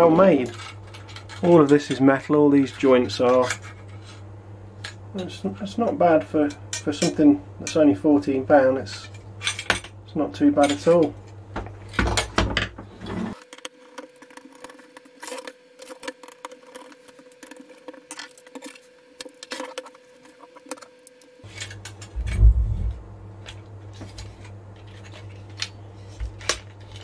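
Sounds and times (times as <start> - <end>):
low thump: 22.2 - 23.0.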